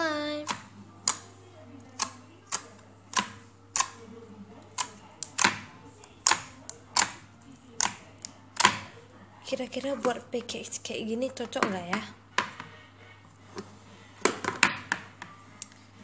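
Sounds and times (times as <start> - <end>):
sticky slime pops and clicks: 0.4 - 1.2, 2.0 - 4.0, 4.8 - 7.2, 7.8 - 8.9.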